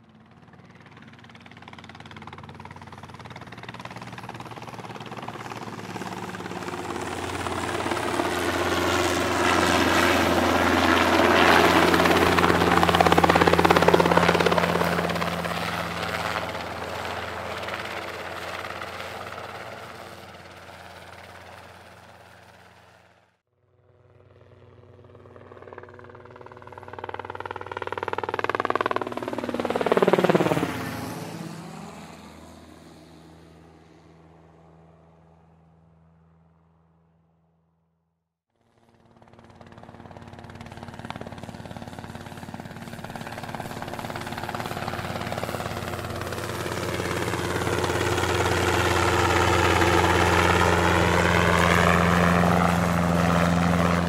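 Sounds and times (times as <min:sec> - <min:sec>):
hydroplane engine passing by: 0:28.8 - 0:35.0, 0:39.0 - 0:54.0.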